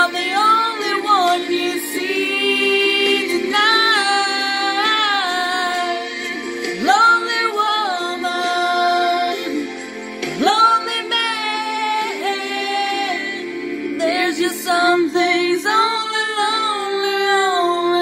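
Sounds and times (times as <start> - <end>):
musical accompaniment: 0.0 - 18.0.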